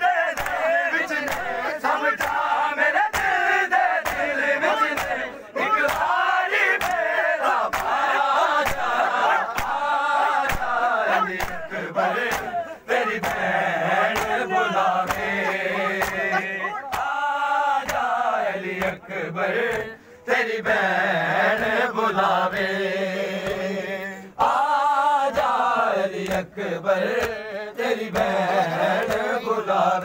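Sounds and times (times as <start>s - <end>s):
men chanting in unison: 0.0s - 30.0s
hands slapping chest: 0.4s - 1.5s, 3.1s - 3.4s, 4.0s - 6.2s, 6.8s - 7.1s, 7.7s - 8.0s, 8.6s - 8.9s, 9.5s - 18.2s, 19.7s - 19.9s, 27.1s - 27.4s, 28.1s - 28.4s.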